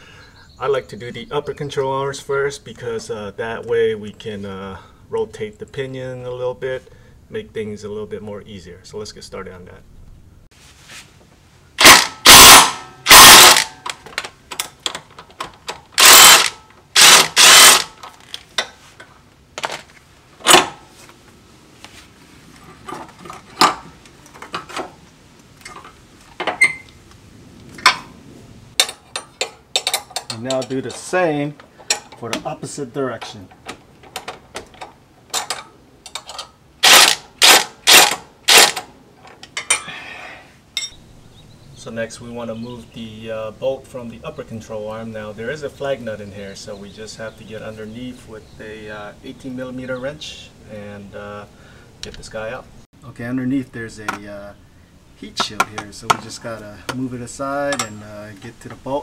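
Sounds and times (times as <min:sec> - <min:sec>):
electric ratchet spinning bolt: 0:11.8 - 0:13.7, 0:16.0 - 0:18.0, 0:36.8 - 0:38.9
impact tool bursts: 0:11.8 - 0:14.0, 0:16.0 - 0:18.1, 0:20.4 - 0:20.8, 0:36.8 - 0:38.9
metal tools clicking together: 0:28.8 - 0:30.8, 0:34.2 - 0:39.9.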